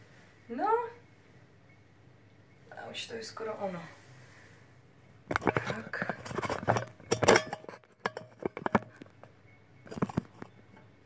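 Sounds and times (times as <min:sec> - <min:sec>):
objects knocking and clinking: 0:05.3 - 0:10.5.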